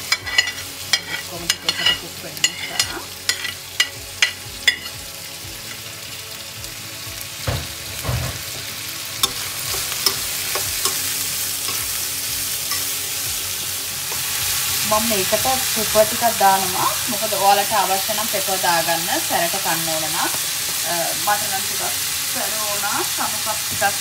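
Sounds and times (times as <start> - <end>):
vegetables sizzling in a wok: 0.0 - 24.0
spoon tapping a pan: 0.1 - 5.0, 9.2 - 12.0, 12.7 - 13.0.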